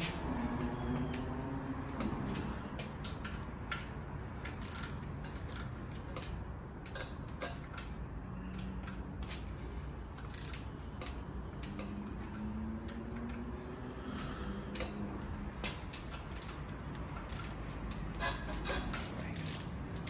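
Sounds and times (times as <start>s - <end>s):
torque wrench ratcheting clicks: 3.0s - 7.9s, 10.1s - 13.4s, 15.8s - 18.1s, 19.4s - 20.0s.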